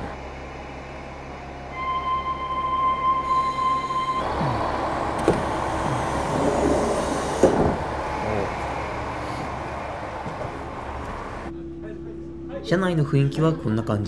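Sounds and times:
railcar idling rumble: 0:00.0 - 0:11.6
air hiss: 0:05.2 - 0:07.9.

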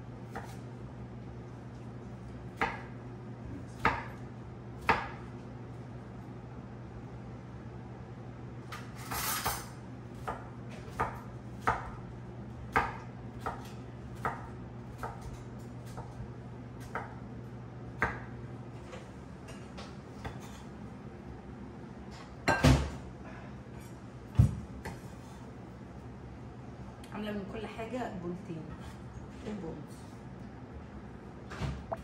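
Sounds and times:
knife chopping on wooden board: 0:00.3 - 0:00.6, 0:02.6 - 0:03.0, 0:03.8 - 0:04.2, 0:04.8 - 0:05.3, 0:10.2 - 0:12.0, 0:12.7 - 0:16.2.

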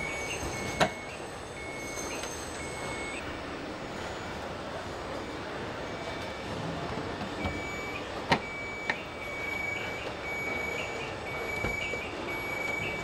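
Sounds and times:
high electronic warning beep: 0:00.0 - 0:03.3, 0:07.4 - 0:13.0.

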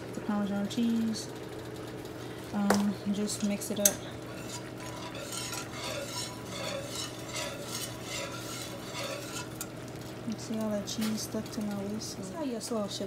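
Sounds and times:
whisk swishing in sauce: 0:04.2 - 0:09.7.

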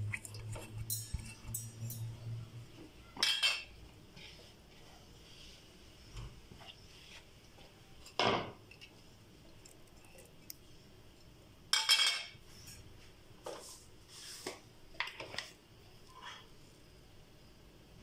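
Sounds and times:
clinks and scrapes on steel jar: 0:00.0 - 0:02.4.

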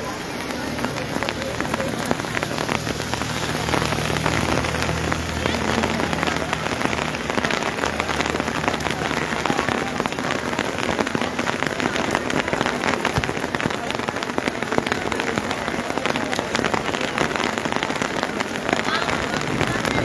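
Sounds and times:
heavy rain on pavement: 0:00.0 - 0:20.0.

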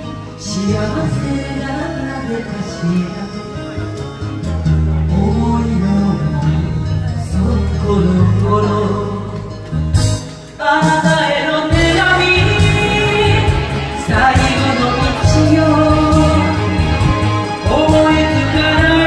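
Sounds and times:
woman singing pop ballad: 0:00.0 - 0:04.1, 0:10.5 - 0:19.0
recorded backing music: 0:00.0 - 0:19.0.

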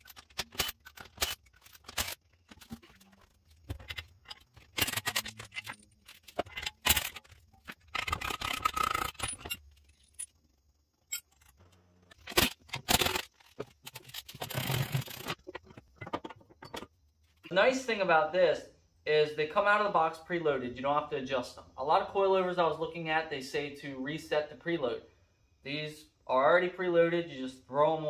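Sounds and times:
metal tool clinks and scrapes: 0:00.0 - 0:10.4, 0:11.0 - 0:12.2, 0:13.7 - 0:16.9.

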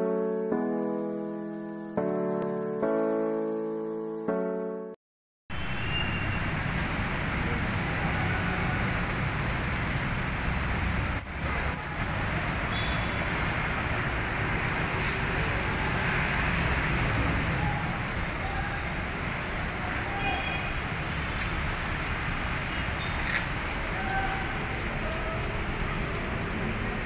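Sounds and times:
piano music: 0:00.0 - 0:05.0
city traffic: 0:05.5 - 0:27.0.

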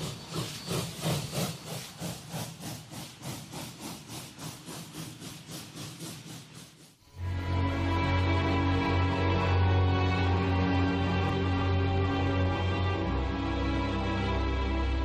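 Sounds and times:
slow orchestral music: 0:07.1 - 0:15.0.

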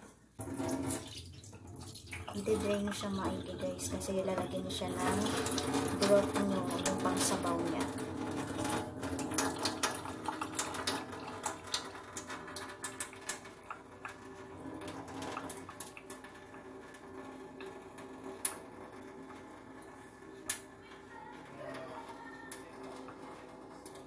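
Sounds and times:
water pouring into steel sink: 0:00.4 - 0:24.0
small clicks and ticks: 0:07.8 - 0:14.5.

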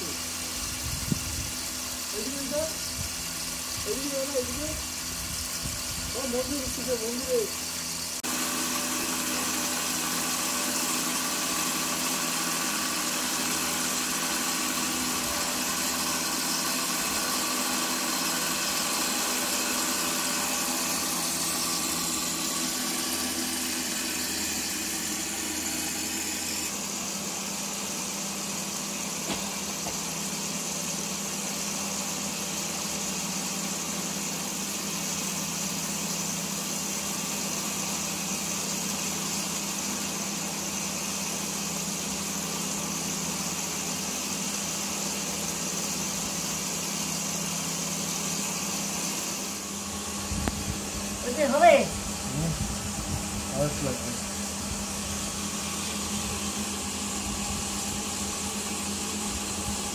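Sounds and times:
machine motor humming: 0:00.0 - 0:35.2, 0:42.2 - 0:59.9.

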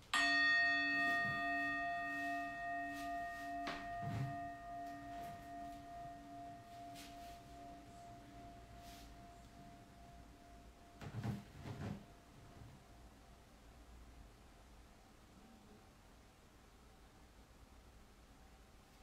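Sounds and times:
singing bowl ringing: 0:00.0 - 0:11.2.

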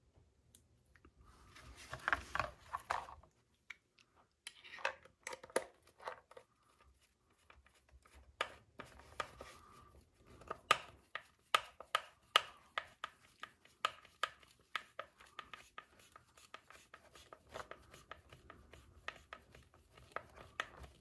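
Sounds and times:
plastic parts clicking and knocking: 0:04.8 - 0:06.5.

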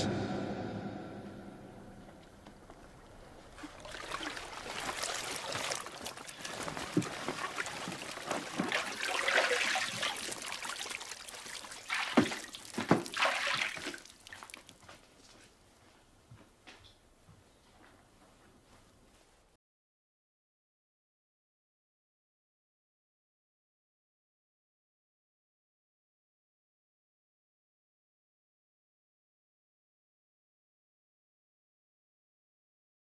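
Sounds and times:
bathwater sloshing and trickling: 0:02.7 - 0:15.0.

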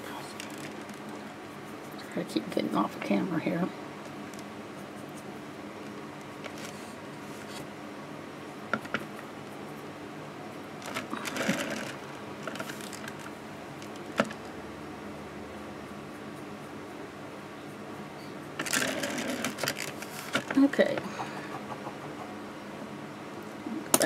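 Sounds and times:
low background hum: 0:00.0 - 0:24.0.

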